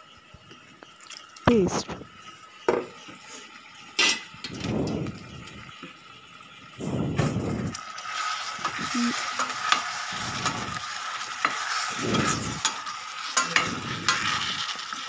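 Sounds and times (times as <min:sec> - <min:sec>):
sizzle of frying in oil: 0:00.0 - 0:15.0
spatula scraping pan: 0:08.6 - 0:15.0.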